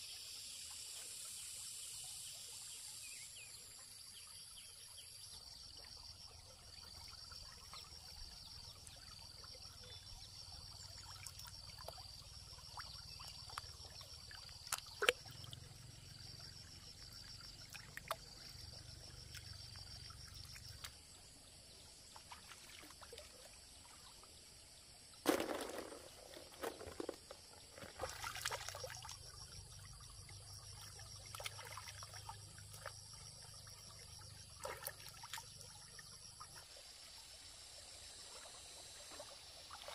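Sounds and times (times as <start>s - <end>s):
faint insect chirping: 0.0s - 39.9s
water trickling and splashing: 5.4s - 39.9s.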